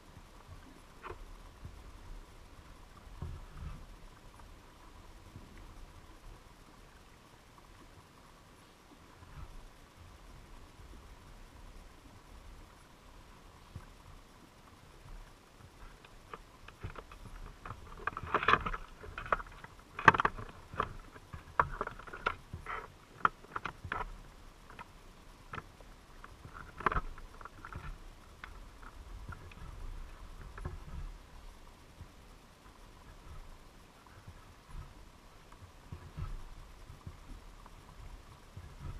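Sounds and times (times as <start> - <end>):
water movement wash: 0.0 - 38.9
underwater clicks and knocks: 0.5 - 1.8, 3.0 - 4.5, 15.0 - 31.2, 32.0 - 38.9.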